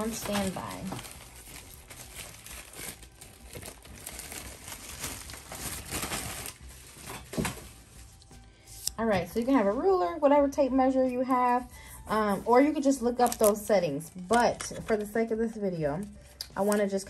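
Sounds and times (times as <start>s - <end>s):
crinkling and rustling by hand: 0.0s - 9.7s, 11.0s - 17.0s.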